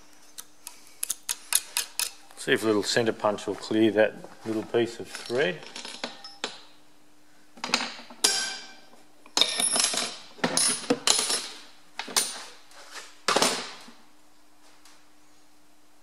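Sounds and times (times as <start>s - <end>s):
metal tools clinking: 5.1s - 6.6s.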